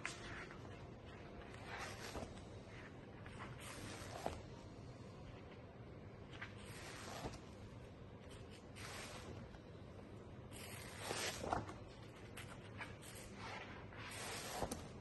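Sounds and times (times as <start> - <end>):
paper pages turning: 0.0 - 4.5, 6.3 - 7.6, 10.5 - 15.0.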